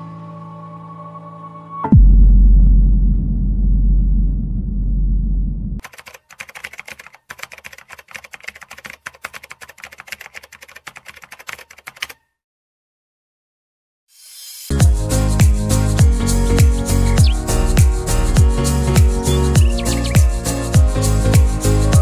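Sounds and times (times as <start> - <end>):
low droning music: 0.0 - 5.8, 14.7 - 22.0
rapid typewriter key clicks: 5.8 - 12.2.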